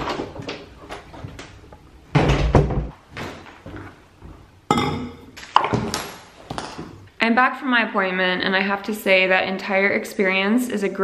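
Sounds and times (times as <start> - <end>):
footsteps on hardwood floor: 0.0 - 4.6.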